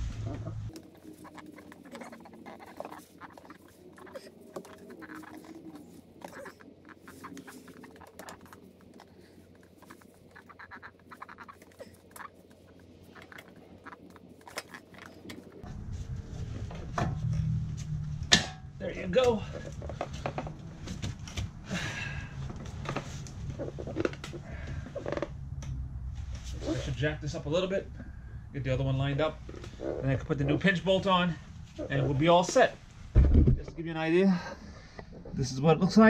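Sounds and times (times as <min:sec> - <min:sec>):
low rumble: 0:00.0 - 0:01.0, 0:15.6 - 0:18.9, 0:22.3 - 0:29.5.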